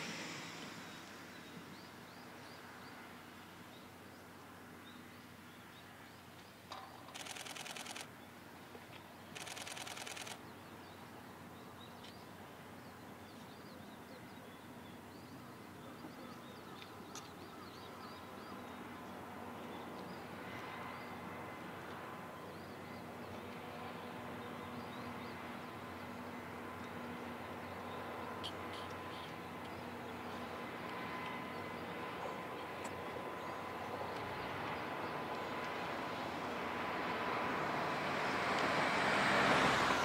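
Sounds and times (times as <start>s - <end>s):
rapid camera shutter clicks: 7.1s - 8.1s, 9.4s - 10.4s.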